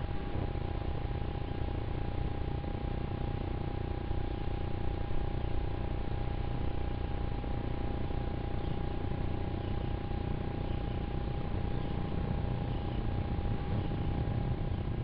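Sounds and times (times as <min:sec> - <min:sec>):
distant jet aircraft rumble: 0:07.3 - 0:15.0.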